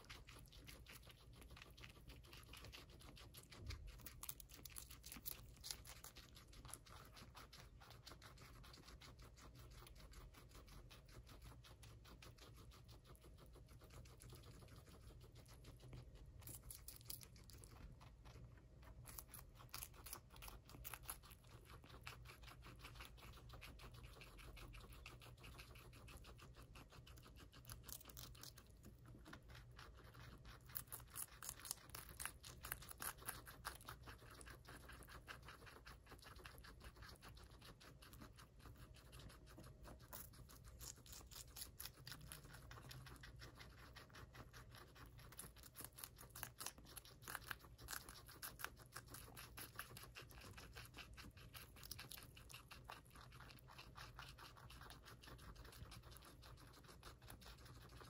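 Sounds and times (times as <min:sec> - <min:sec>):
guinea pigs crunching pepper: 0:00.0 - 0:58.0.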